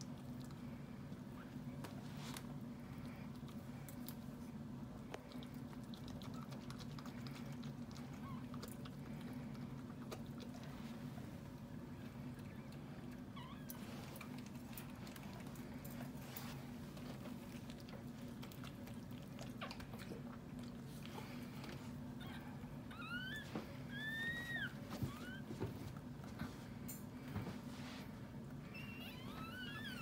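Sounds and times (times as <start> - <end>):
low steady hum: 0.0 - 30.0
small clicks and rustles: 5.0 - 22.0
puppy squeaking: 22.2 - 25.5, 28.6 - 30.0.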